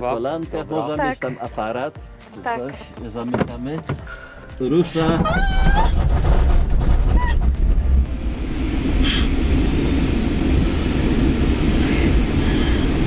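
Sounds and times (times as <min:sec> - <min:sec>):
rush of air: 0:05.7 - 0:13.0.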